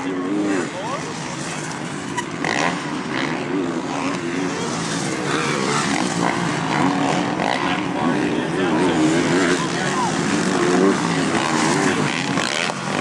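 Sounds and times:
motocross bike engines revving: 0.0 - 13.0.

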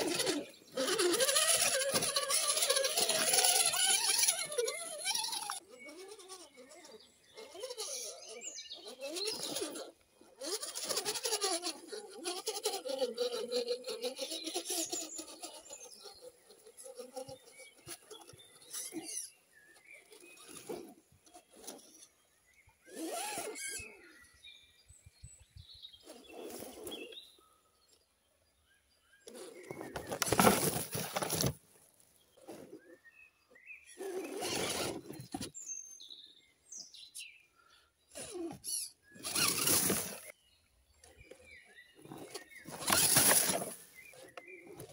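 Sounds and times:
rc car tyres scrabbling: 0.0 - 22.1, 22.9 - 23.9, 29.3 - 32.9, 33.9 - 35.6, 38.1 - 40.3, 41.0 - 44.9
birds chirping: 0.0 - 44.9
tyres crunching on dirt: 29.7 - 31.8, 42.1 - 44.9.

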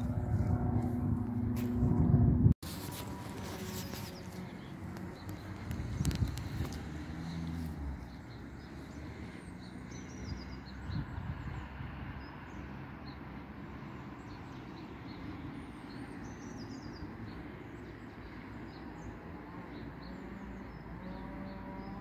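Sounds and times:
steady low rumble: 0.0 - 7.1
small birds chirping: 2.7 - 22.0.

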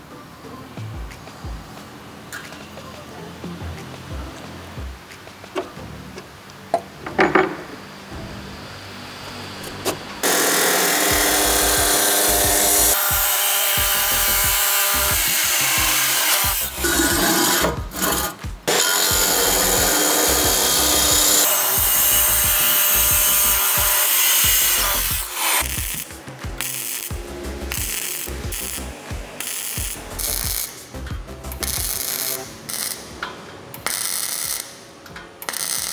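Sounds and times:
background music: 0.0 - 35.9
electric power tool cutting wood: 10.2 - 30.8.

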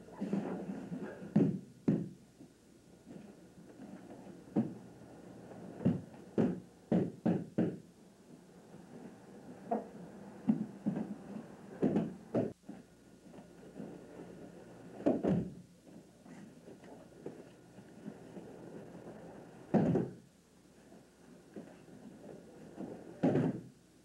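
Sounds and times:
bodies thudding on gym mats: 5.8 - 7.8, 11.8 - 12.6, 15.0 - 15.6, 19.7 - 20.2, 23.2 - 23.7.

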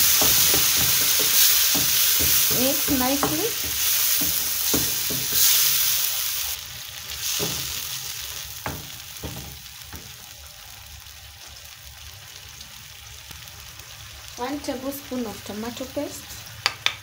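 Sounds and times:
wooden spoon stirring and scraping: 0.0 - 6.2
food sizzling in frying pan: 0.0 - 17.0
spoon knocking against pan: 0.1 - 5.6.

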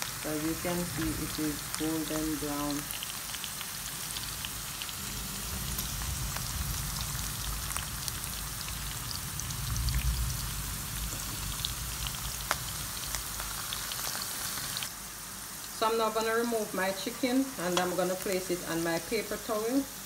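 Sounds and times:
frying sizzle with pops: 0.0 - 20.0
low rumble: 4.9 - 13.0.

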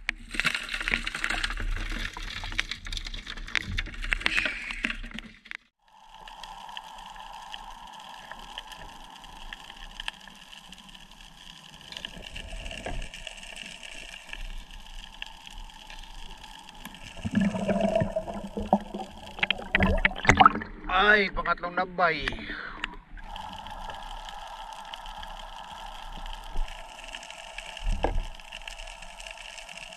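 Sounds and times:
faint clicks: 3.6 - 20.4, 22.2 - 29.9
muffled underwater hiss: 5.8 - 29.9
water stirring: 6.3 - 29.9.

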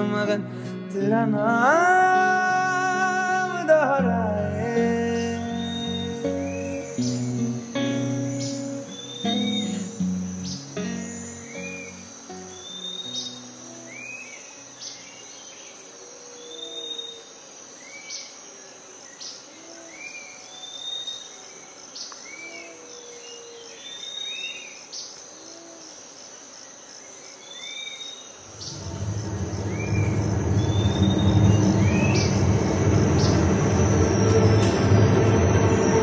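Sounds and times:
high insect trill: 1.5 - 36.0
short chirping calls: 5.2 - 15.2
loud low rumble: 28.5 - 36.0.

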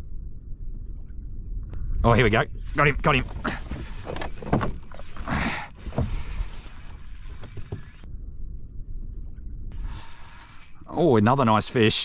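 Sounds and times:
fishing reel gears clicking: 2.6 - 8.1, 9.8 - 12.0.

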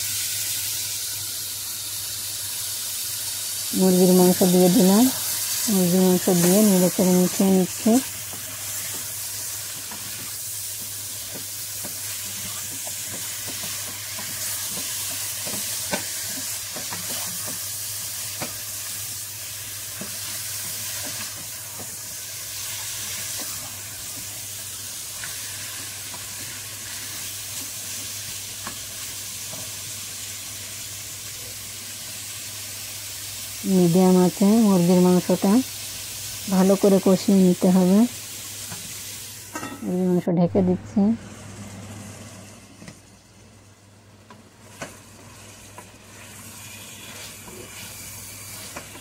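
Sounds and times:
chicken sizzling in hot oil: 0.0 - 40.1, 41.0 - 49.0
spatula scraping pot: 45.7 - 49.0.

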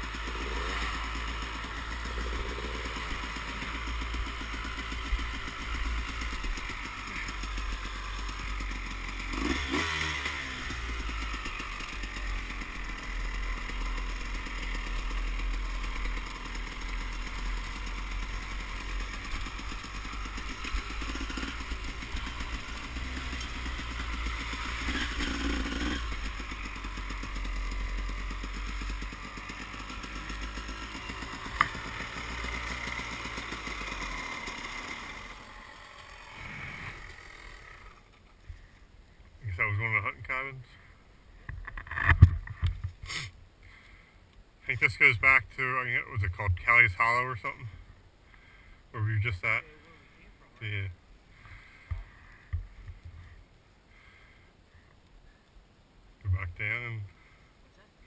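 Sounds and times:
dirt bike engine revving: 0.0 - 38.7.

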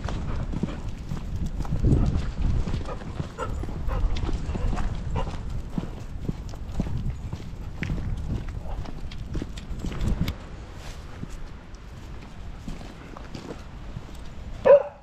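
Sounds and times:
footsteps on gravel: 0.0 - 14.5
wind rumbling on microphone: 0.0 - 15.0.

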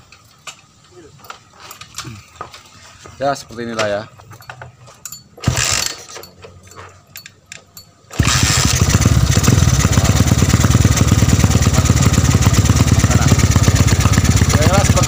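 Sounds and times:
motorcycle engine running: 8.2 - 15.0.

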